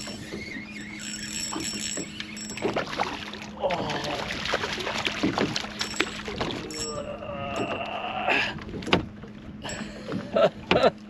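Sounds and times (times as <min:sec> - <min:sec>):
fishing reel clicks: 0:00.0 - 0:02.6.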